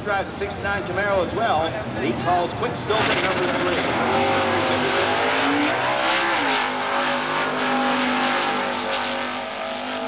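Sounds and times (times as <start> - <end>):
drag racing car engine at full throttle: 0.0 - 10.0.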